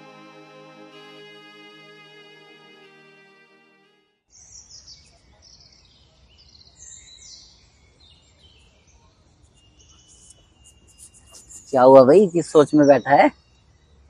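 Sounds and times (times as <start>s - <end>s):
background music: 0.0s - 4.2s
birds chirping: 9.5s - 13.7s.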